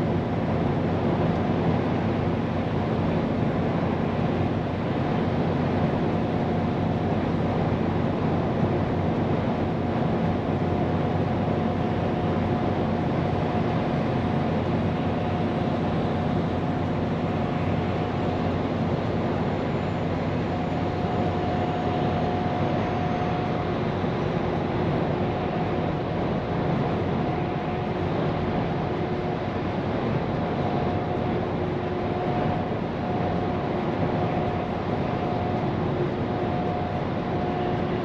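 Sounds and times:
faint steady whine: 0.0 - 38.0
road and tyre noise: 0.0 - 38.0.

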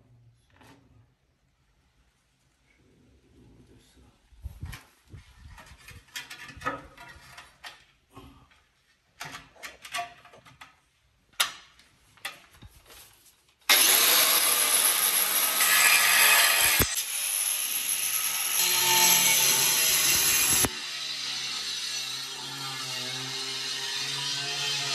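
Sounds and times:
floor tile knocks and scrapes: 4.6 - 8.4
angle grinder cutting tile: 13.7 - 24.9.

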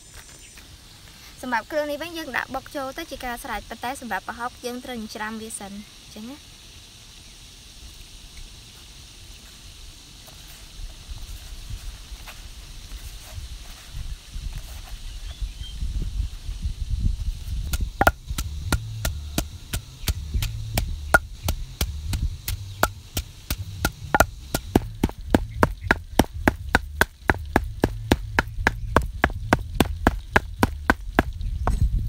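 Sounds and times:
low steady rumble: 16.0 - 32.0
knife chopping on wooden board: 18.0 - 21.9, 22.5 - 31.8.

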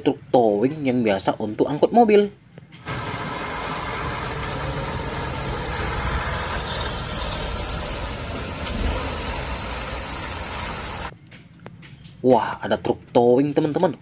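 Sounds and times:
road noise: 2.4 - 13.3
truck diesel engine: 2.8 - 11.1.

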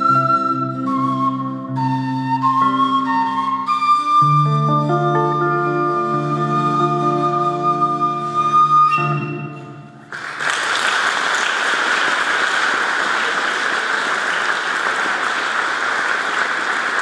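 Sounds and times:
flute harpsichord and guitar chord: 0.0 - 9.9
audience applause: 10.1 - 17.0.

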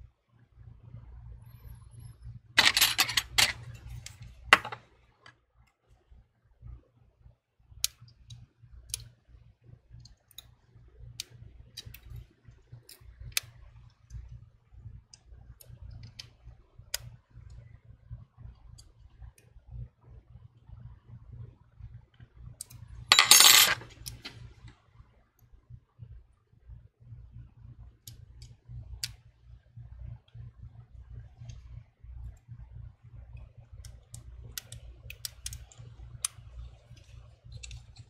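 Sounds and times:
tweezers clicking on small parts: 7.8 - 9.2, 10.0 - 12.2, 12.8 - 13.6, 33.8 - 38.0.

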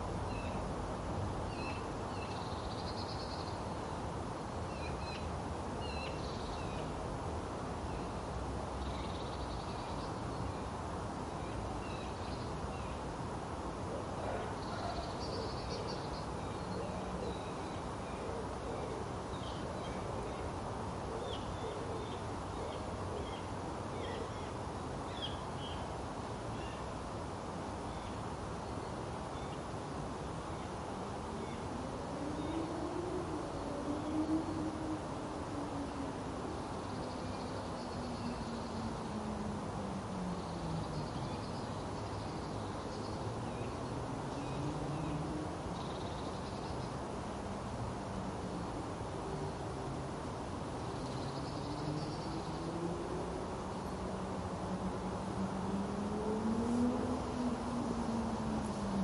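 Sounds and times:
distant city hum: 47.1 - 59.0.

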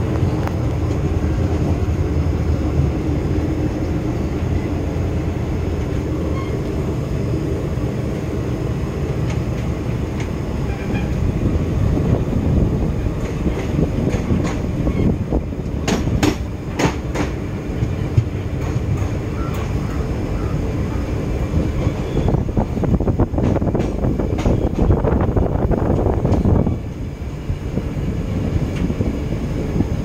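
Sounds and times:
train wheels rumbling on rails: 0.0 - 30.0
wheels clacking over rail joints: 8.2 - 27.1.

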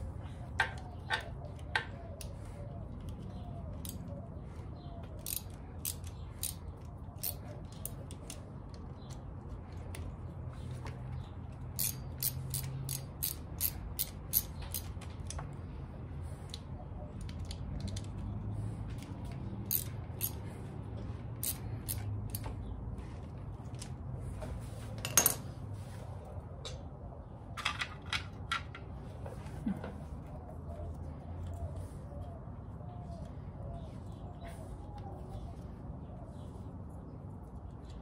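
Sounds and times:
hand ratchet clicking: 5.2 - 6.6, 7.2 - 8.5, 11.7 - 15.4, 19.6 - 20.4, 21.4 - 22.5.

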